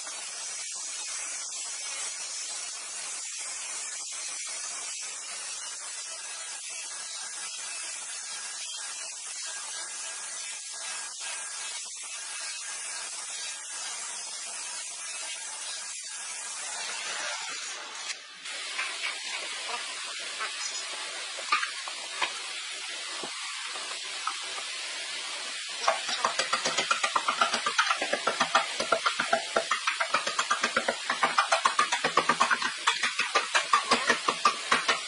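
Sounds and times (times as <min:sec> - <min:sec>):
steady hiss: 0:00.0 - 0:35.0
hammer striking wood: 0:25.8 - 0:35.0.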